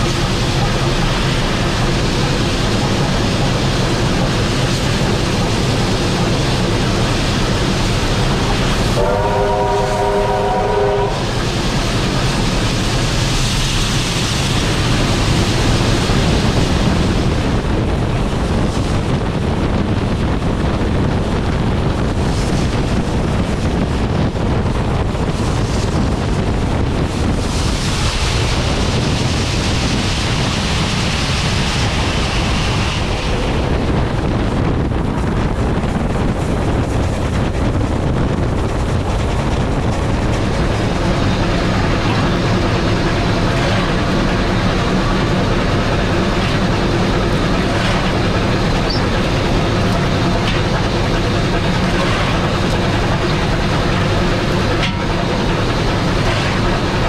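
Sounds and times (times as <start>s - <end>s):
train rumbling on track: 0.0s - 57.0s
wind buffeting camera: 0.0s - 57.0s.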